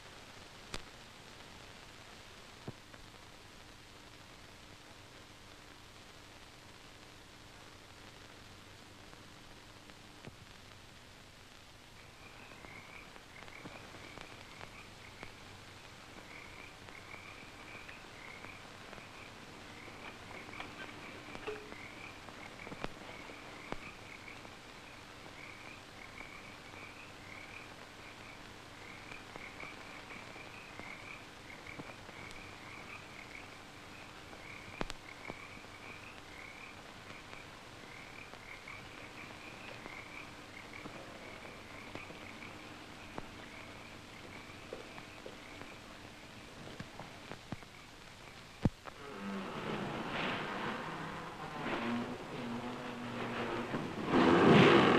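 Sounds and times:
film soundtrack hiss and clicks: 0.0s - 54.9s
frogs chirping: 12.0s - 46.4s, 47.5s - 48.7s.

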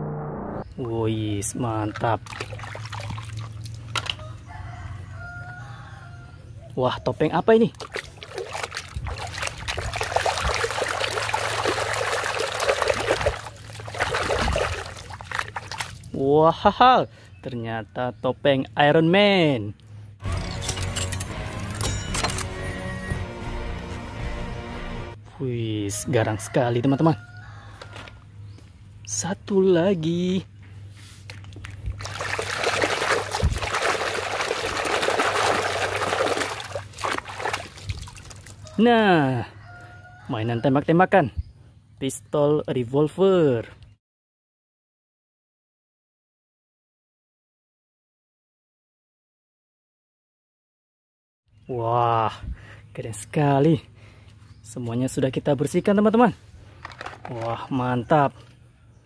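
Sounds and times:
water sloshing and splashing: 1.8s - 4.2s, 7.7s - 16.2s, 31.7s - 38.7s.

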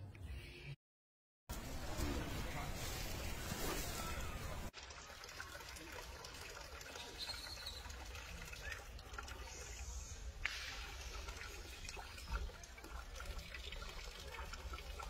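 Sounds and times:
water trickling into a basin: 4.7s - 15.0s.

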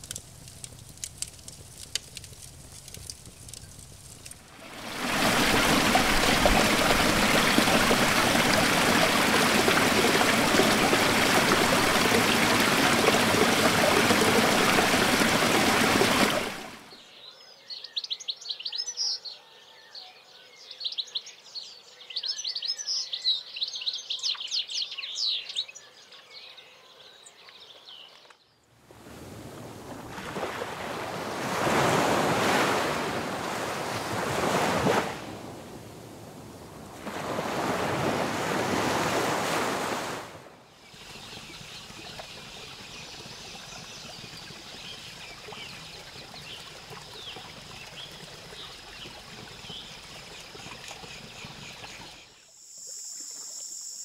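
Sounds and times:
waterfall pouring over rocks: 0.0s - 16.9s
waves washing onto a beach: 0.9s - 16.9s, 28.9s - 41.6s
songbirds chirping: 14.1s - 28.7s, 40.7s - 52.4s.

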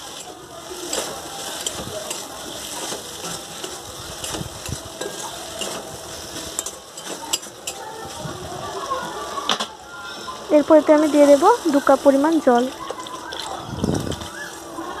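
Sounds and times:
metal spatula scraping a pan: 0.0s - 7.9s
food sizzling in a pan: 0.0s - 15.0s.

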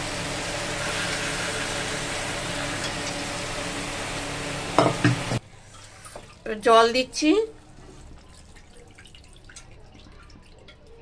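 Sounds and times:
oil sizzling: 0.0s - 10.8s
thick liquid pouring: 7.5s - 11.0s.

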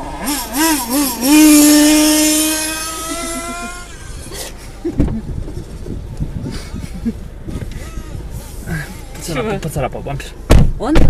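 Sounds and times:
dull thumps: 10.5s - 11.0s.

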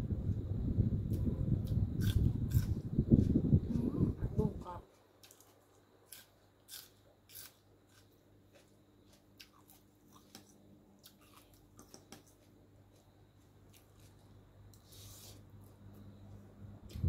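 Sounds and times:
faint low hum: 0.0s - 17.0s
chewing: 1.6s - 2.8s, 4.9s - 13.1s.

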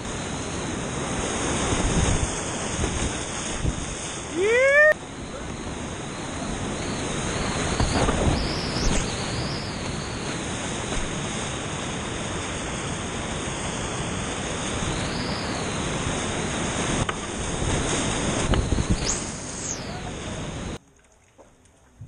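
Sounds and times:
rapids roaring: 0.0s - 20.8s
kayak splashing: 0.9s - 14.9s, 20.2s - 22.0s.

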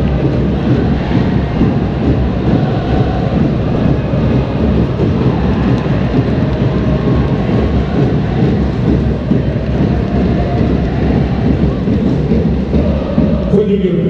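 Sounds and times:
stadium crowd roar: 0.0s - 14.0s.

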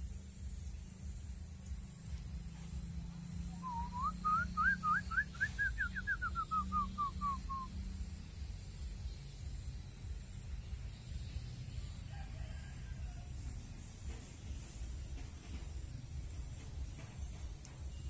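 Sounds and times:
pigeon whistled notes: 3.6s - 7.8s.

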